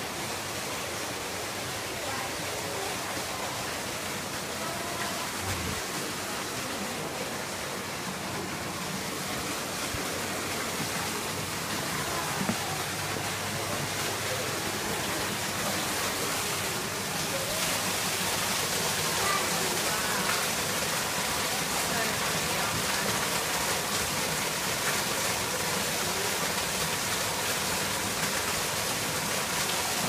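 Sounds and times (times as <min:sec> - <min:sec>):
waterfall rushing: 0:00.0 - 0:30.0
faint voices: 0:01.2 - 0:23.9.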